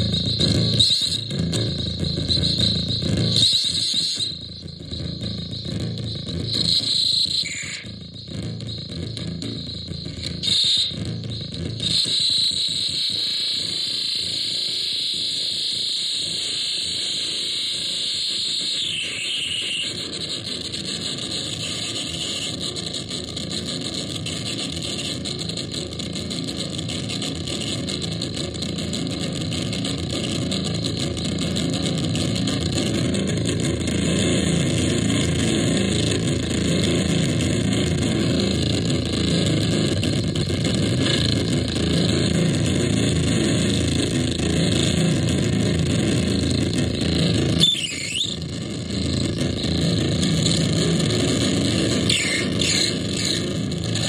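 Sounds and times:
loud electronic noise: 0.0s - 54.0s.

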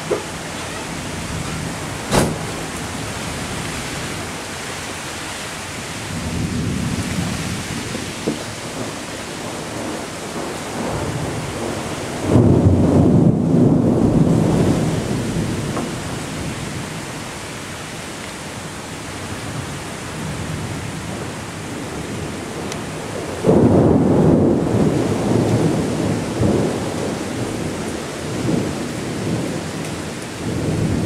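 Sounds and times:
steady rain: 0.0s - 31.0s
thunder rumbling: 6.0s - 17.3s, 19.4s - 31.0s.

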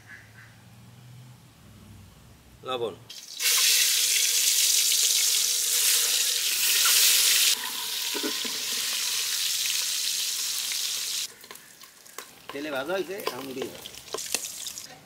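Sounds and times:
eggs sizzling in hot oil: 3.1s - 14.9s.

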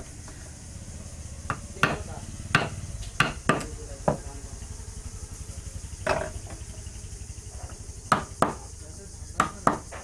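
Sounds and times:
steady low hum: 0.0s - 10.0s
tools knocking on wood: 1.5s - 4.3s, 7.6s - 8.7s, 9.4s - 10.0s.

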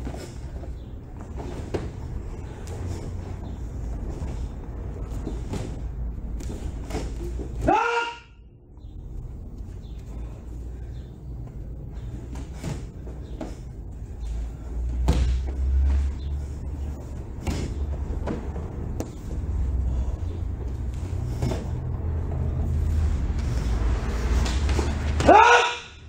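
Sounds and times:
steady low hum: 0.0s - 7.7s, 8.3s - 25.3s
feet striking mat: 0.0s - 8.0s, 12.0s - 21.9s
loud kiai shout: 7.6s - 8.4s, 25.2s - 26.0s.

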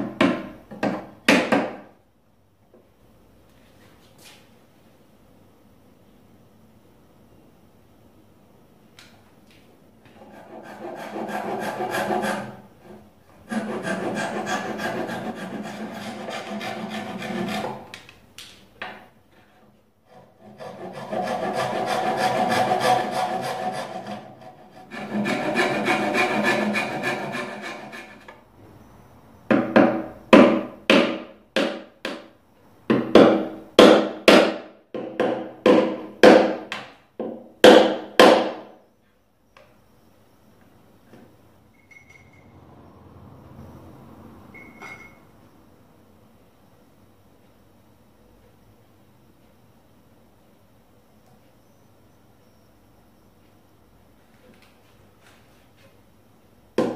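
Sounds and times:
handsaw cutting wood: 10.2s - 12.6s, 13.5s - 17.8s, 20.1s - 28.3s.

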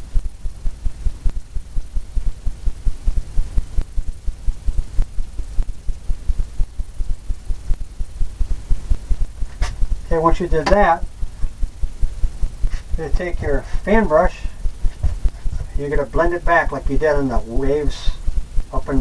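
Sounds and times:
low throbbing rumble: 0.0s - 19.0s.

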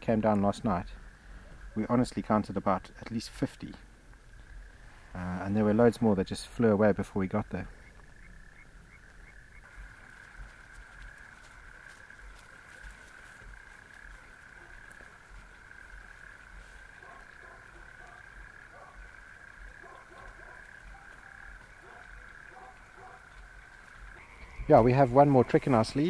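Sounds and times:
low frog croaks: 0.0s - 26.0s
high-pitched frog calling: 7.3s - 26.0s.

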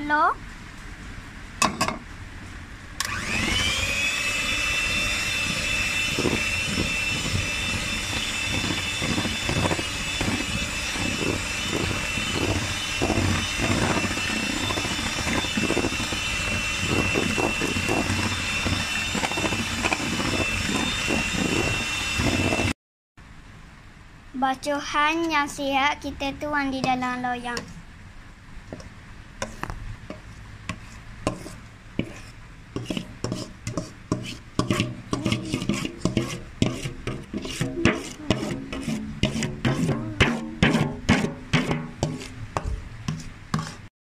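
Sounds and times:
electric hand mixer whine: 3.0s - 22.8s.

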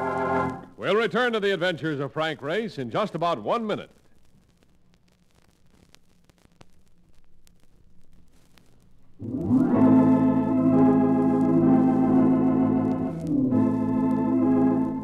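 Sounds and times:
organ chords: 0.0s - 1.1s, 9.2s - 15.0s.

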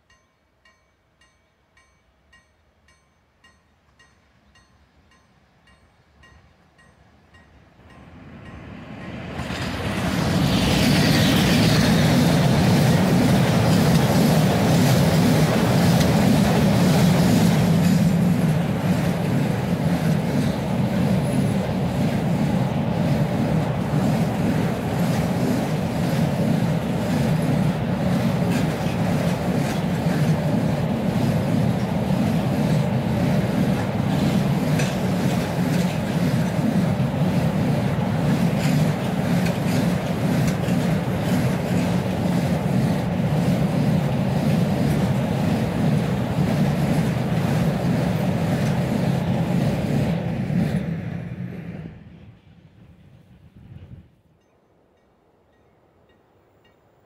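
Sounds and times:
electric locomotive passing: 0.0s - 57.0s
train wagons rumbling past: 0.0s - 57.0s
wheels clicking over rail joints: 31.7s - 42.4s.

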